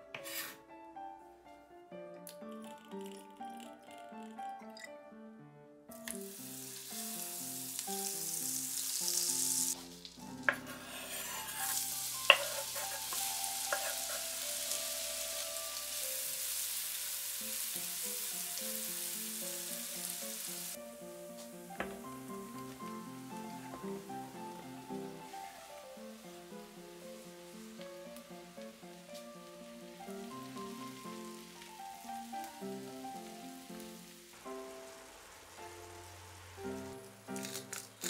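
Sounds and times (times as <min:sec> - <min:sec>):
background music: 0:00.0 - 0:38.0
onion sliding into pan with knocks: 0:00.2 - 0:00.6, 0:09.8 - 0:14.4
oil sizzling in frying pan: 0:05.9 - 0:38.0.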